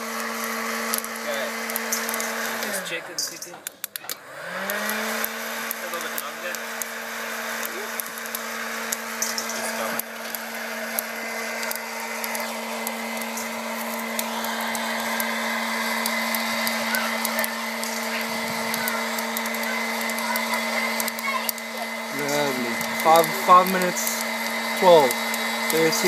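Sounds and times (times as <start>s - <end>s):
coffee beans clicking: 0.0s - 6.9s, 7.6s - 26.0s
popcorn popper fan humming: 0.0s - 26.0s.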